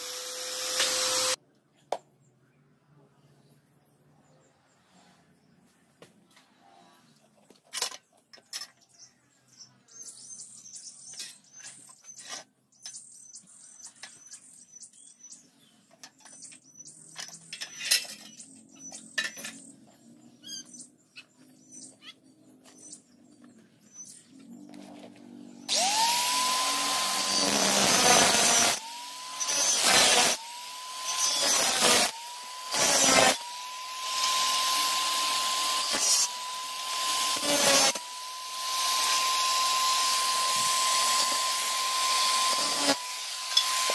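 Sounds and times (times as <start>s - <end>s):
angle grinder cutting steel: 0.0s - 1.4s, 25.6s - 43.9s
bird chirping: 7.0s - 25.8s.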